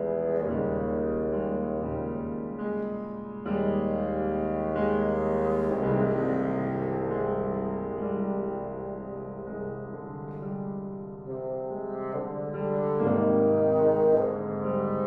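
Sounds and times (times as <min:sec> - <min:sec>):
piano chords: 0:00.0 - 0:15.0
bassoon notes: 0:11.3 - 0:15.0.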